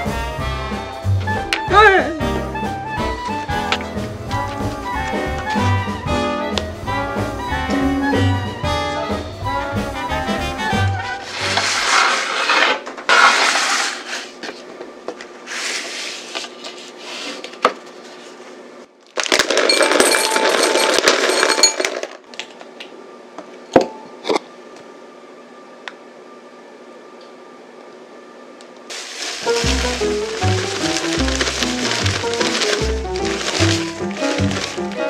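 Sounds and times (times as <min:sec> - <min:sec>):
background music: 0:00.0 - 0:11.6, 0:28.9 - 0:35.0
rustling noise: 0:11.2 - 0:14.7, 0:28.9 - 0:35.0
glass bowl and utensils clinking: 0:19.7 - 0:22.0.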